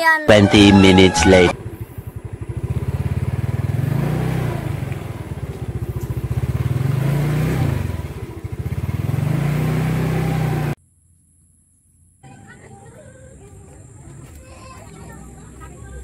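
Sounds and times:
small motorcycle engine revving: 0:00.8 - 0:10.8.

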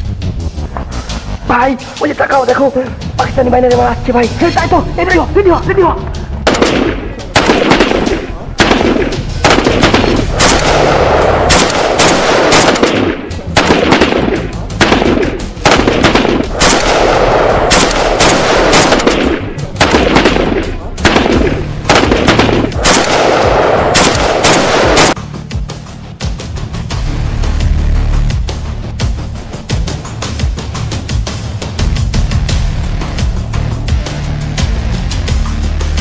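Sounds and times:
dramatic background music: 0:00.0 - 0:36.0
rifle and machine-gun fire: 0:06.4 - 0:25.2.

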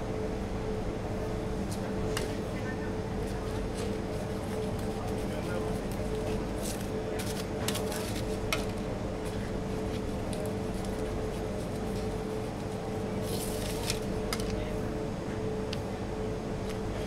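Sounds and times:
steady machine hum: 0:00.0 - 0:17.0
foil crinkles and taps: 0:04.6 - 0:08.8, 0:09.9 - 0:12.1.

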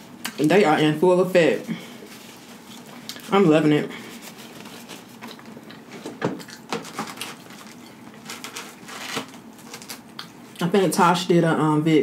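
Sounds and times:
pizza crust crackling as torn: 0:06.5 - 0:10.2.

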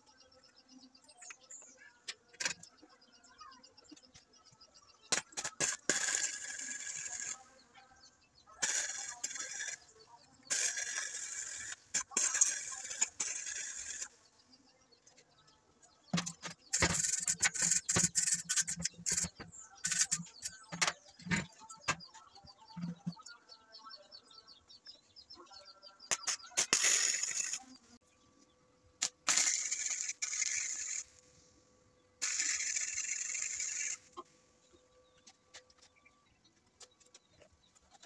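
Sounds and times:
knocks and clicks: 0:16.1 - 0:23.3
welding torch crackling hiss: 0:29.3 - 0:31.2.

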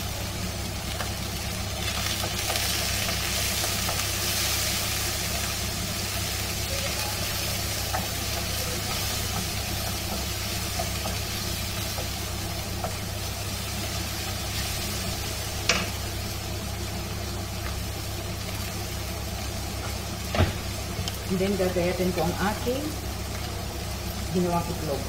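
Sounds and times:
spatula scraping and tapping wok: 0:07.8 - 0:13.1.

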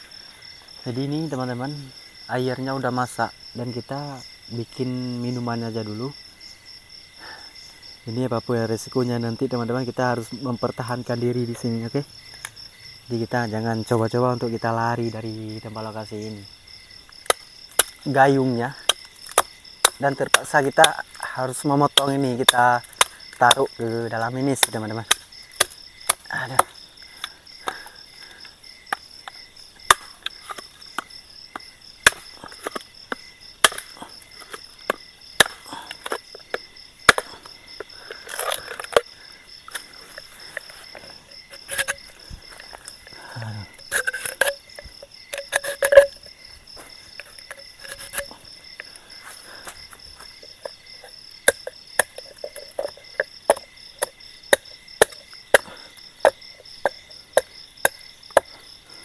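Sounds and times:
night insects trilling: 0:00.0 - 0:59.0
blade chopping into wood: 0:17.2 - 0:18.0, 0:24.6 - 0:26.7, 0:29.8 - 0:39.1.

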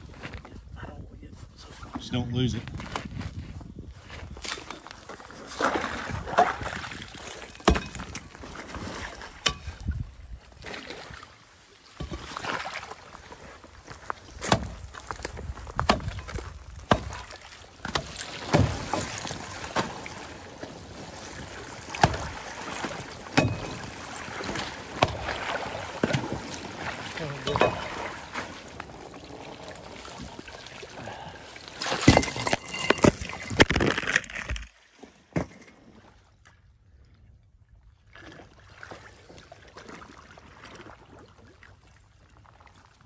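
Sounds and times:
water and ice splashing: 0:04.2 - 0:36.4, 0:38.1 - 0:43.0
tool chopping into ice: 0:14.4 - 0:14.8, 0:15.8 - 0:18.8
ice cracking: 0:31.8 - 0:34.8.

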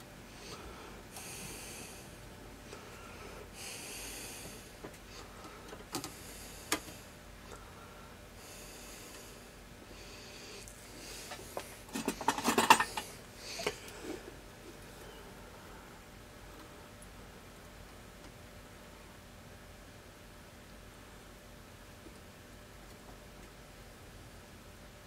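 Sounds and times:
man breathing through nose: 0:00.3 - 0:12.0.

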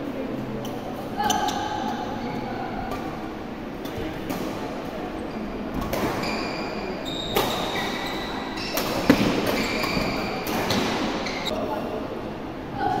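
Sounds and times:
shoes squeaking on court: 0:01.2 - 0:02.5, 0:05.3 - 0:11.5
racket hitting shuttlecock: 0:08.7 - 0:11.2.

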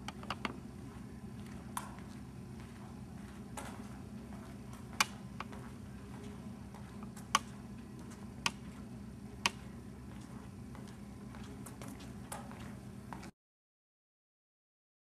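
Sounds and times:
low hum: 0:00.0 - 0:13.3
footsteps on hard floor: 0:00.9 - 0:08.9.

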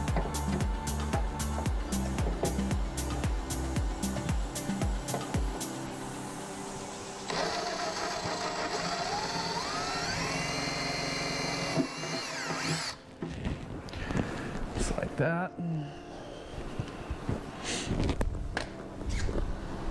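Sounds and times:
electric drill whine: 0:00.0 - 0:13.0.

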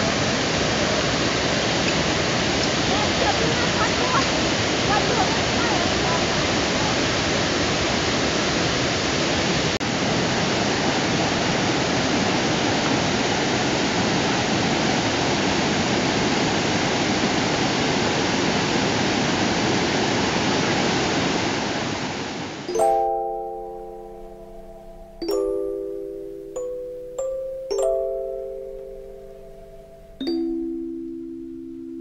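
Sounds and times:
waterfall rushing over rocks: 0:00.0 - 0:25.1
chiming mallet percussion tune: 0:22.7 - 0:32.0.

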